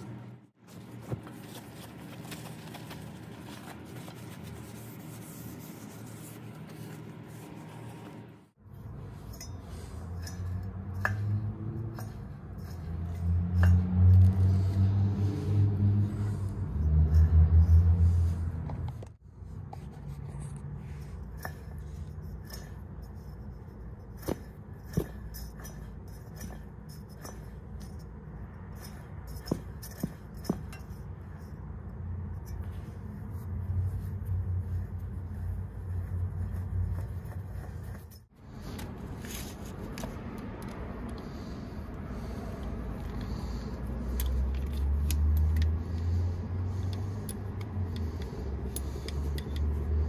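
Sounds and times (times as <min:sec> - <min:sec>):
metal clicks and clinks: 0:46.8 - 0:50.0.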